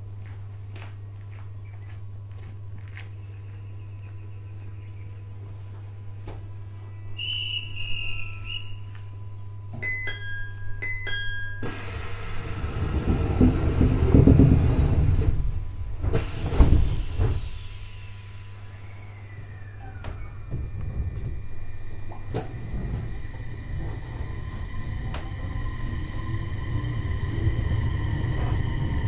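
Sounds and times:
train low hum: 0:00.0 - 0:29.0
two-note door chime: 0:09.7 - 0:11.8
doors rumbling thumps: 0:12.4 - 0:17.9, 0:19.3 - 0:29.0.

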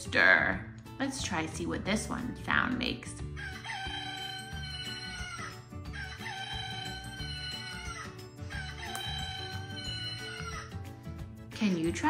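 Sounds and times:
recorded rooster crowing: 0:03.4 - 0:10.6.

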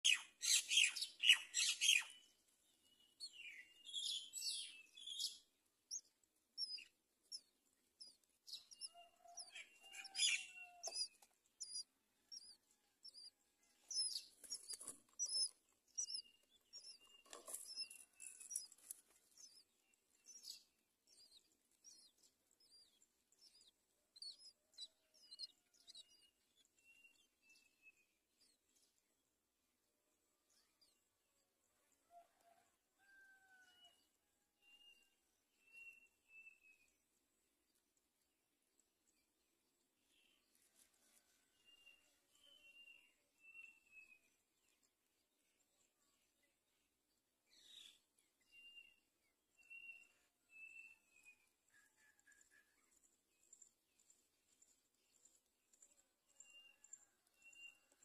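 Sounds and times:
nestlings chirping: 0:00.1 - 0:27.7.

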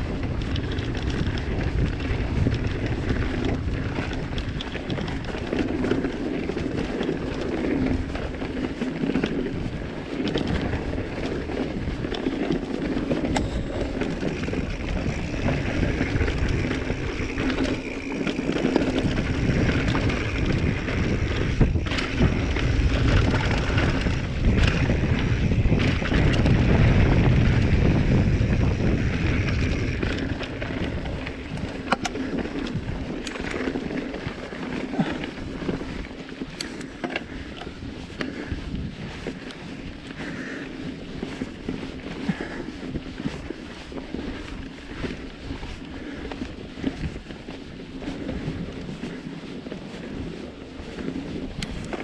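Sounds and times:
bike knocks and rattles: 0:00.0 - 0:37.5
tyres rumbling on dirt: 0:00.0 - 0:52.0
wind buffeting microphone: 0:00.0 - 0:52.0.

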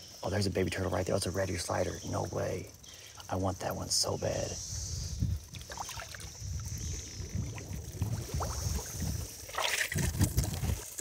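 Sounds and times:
high insect hum: 0:00.0 - 0:11.0
person wading through water and mud: 0:05.5 - 0:11.0.

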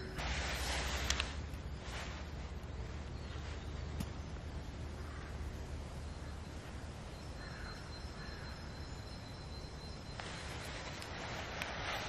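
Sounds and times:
steady low rumble: 0:00.0 - 0:12.0
distant crow cawing: 0:04.9 - 0:05.6, 0:07.4 - 0:08.8.

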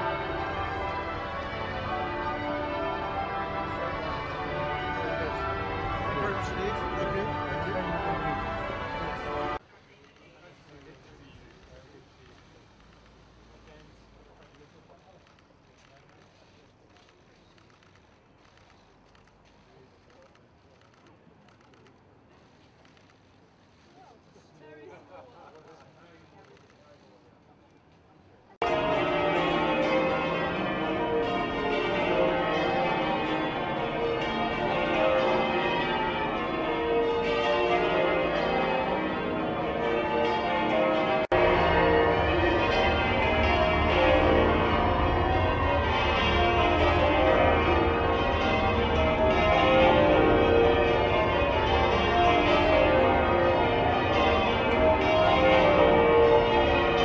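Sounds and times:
church bells pealing: 0:00.0 - 0:09.6, 0:28.6 - 0:57.0.

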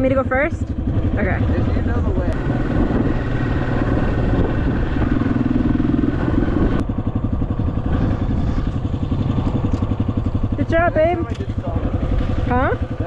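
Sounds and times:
dirt bike engine running: 0:00.0 - 0:13.0
slow pulsing engine putter: 0:00.0 - 0:13.0.

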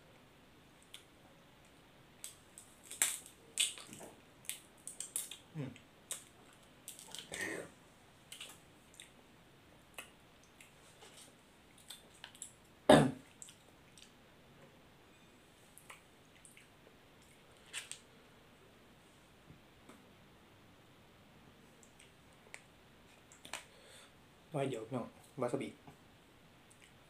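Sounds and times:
wet chewing and lip smacks: 0:11.7 - 0:12.6, 0:13.3 - 0:14.2, 0:15.8 - 0:18.0, 0:21.8 - 0:23.7.

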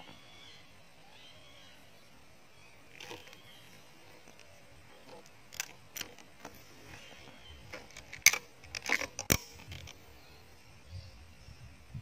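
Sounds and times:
sharp clicks and knocks: 0:04.2 - 0:06.6, 0:07.6 - 0:10.0.

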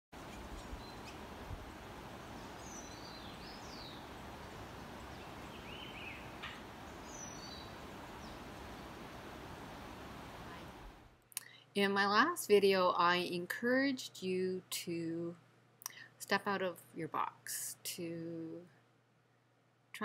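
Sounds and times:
outdoor background hiss: 0:00.2 - 0:20.0
bird chirps: 0:02.4 - 0:08.9.

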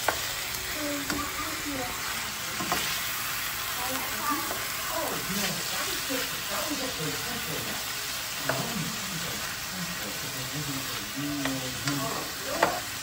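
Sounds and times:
food sizzling in a frying pan: 0:00.0 - 0:13.0
utensil clicking against pan: 0:11.4 - 0:12.9.

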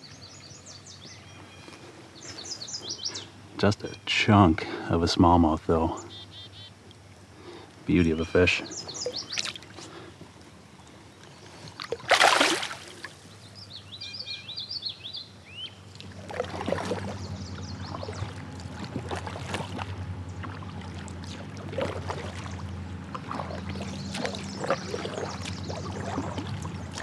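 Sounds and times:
bird chirps: 0:00.0 - 0:04.1, 0:06.0 - 0:06.8, 0:08.6 - 0:09.5, 0:13.4 - 0:15.9
kayak paddle splashing: 0:08.7 - 0:10.4, 0:11.4 - 0:13.3, 0:16.0 - 0:27.0
fish splashing in water: 0:11.7 - 0:13.3, 0:16.0 - 0:27.0.

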